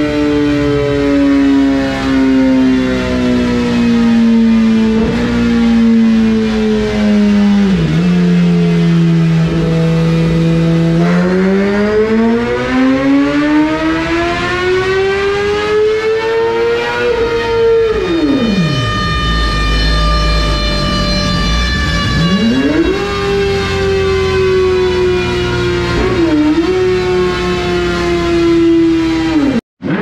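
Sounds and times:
motorcycle engine revving on dyno: 0.0 - 30.0.

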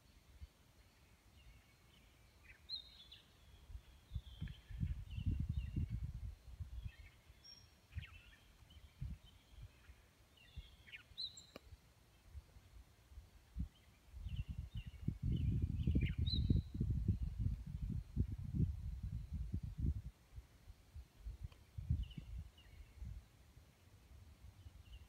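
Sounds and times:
songbirds chirping: 0.0 - 25.0
wind rumble on microphone: 2.4 - 10.8, 13.2 - 23.3.

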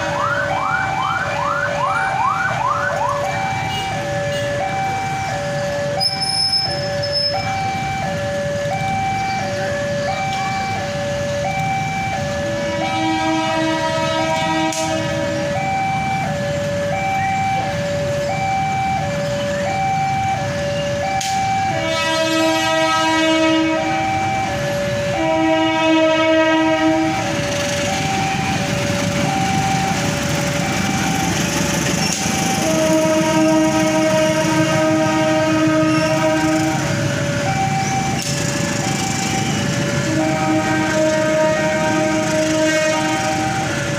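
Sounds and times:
low rumble of traffic: 0.0 - 43.9
two-tone level crossing alarm: 0.0 - 43.9
locomotive horn blasts: 12.6 - 15.5, 21.6 - 24.1, 25.0 - 27.4, 32.1 - 37.0, 39.4 - 43.7.

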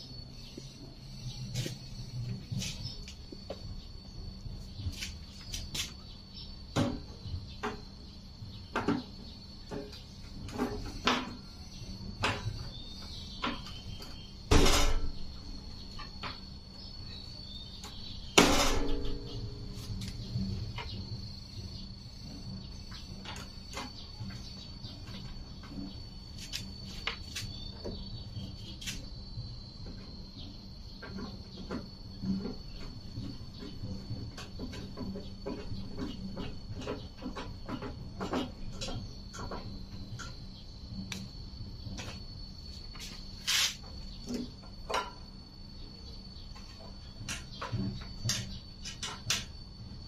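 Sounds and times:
loud ringing knocks: 14.5 - 15.4, 18.3 - 19.7.

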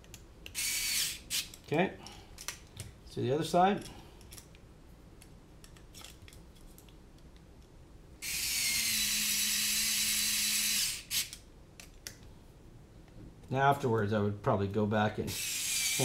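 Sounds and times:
electric screwdriver running: 8.2 - 11.3, 15.3 - 16.0.

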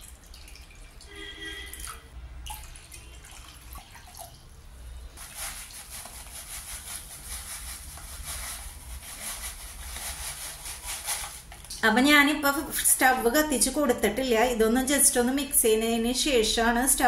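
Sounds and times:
powder pouring hiss: 5.2 - 11.5.

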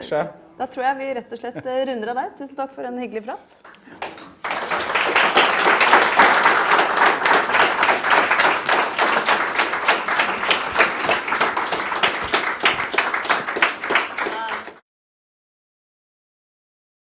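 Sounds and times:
audience clapping: 3.6 - 14.8.

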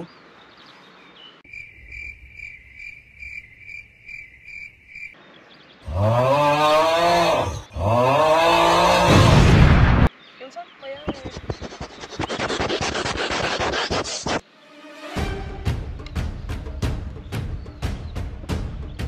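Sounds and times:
crickets chirping: 1.4 - 5.8.

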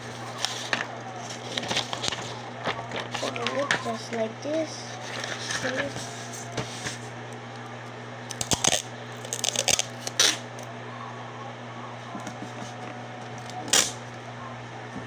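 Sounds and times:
tape and paper crinkling: 0.0 - 4.2, 4.9 - 10.7
steady low hum: 0.0 - 15.0.

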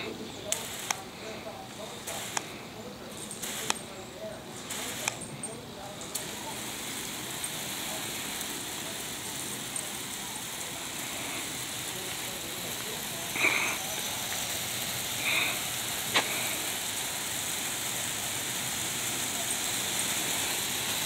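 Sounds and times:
hose spray nozzle hissing: 0.0 - 21.0.

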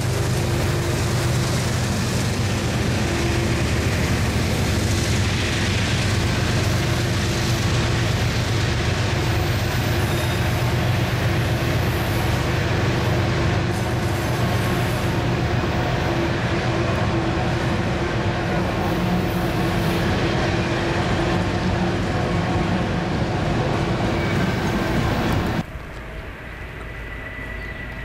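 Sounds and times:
steel wheels rumbling on rail: 0.0 - 28.0.

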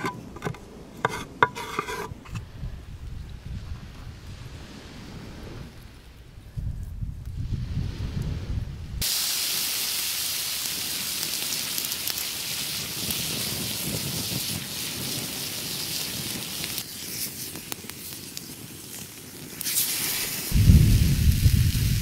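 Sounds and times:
wood fire crackling: 9.0 - 22.0.

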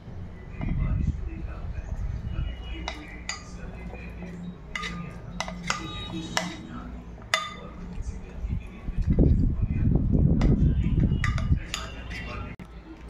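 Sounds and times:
metal spoon clinking on glass: 2.8 - 7.7, 11.2 - 12.4.

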